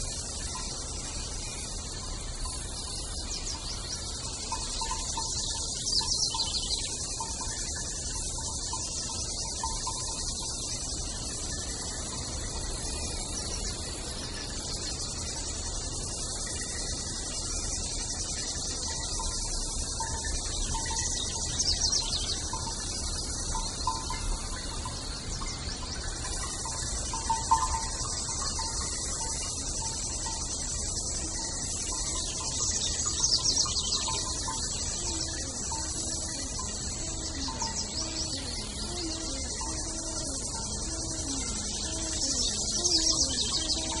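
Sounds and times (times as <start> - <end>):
high bird chirps: 31.3 - 44.0.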